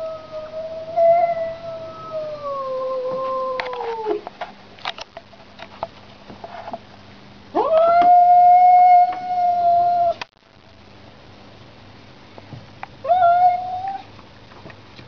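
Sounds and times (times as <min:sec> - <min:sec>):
cat yowling: 0:07.5 - 0:10.2, 0:13.0 - 0:14.1.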